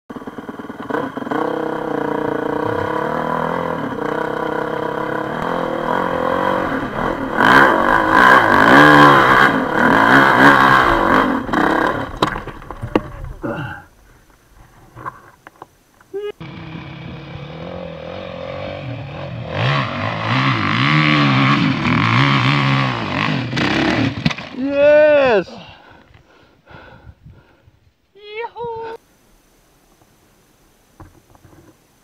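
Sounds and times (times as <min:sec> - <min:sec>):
dirt bike engine revving: 0:00.1 - 0:13.6, 0:16.4 - 0:24.5.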